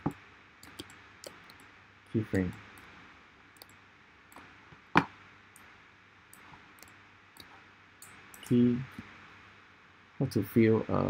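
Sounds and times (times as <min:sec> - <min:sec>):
computer mouse clicking: 0:00.0 - 0:01.7, 0:03.6 - 0:05.7, 0:06.3 - 0:08.6
steady low hiss: 0:00.0 - 0:11.0.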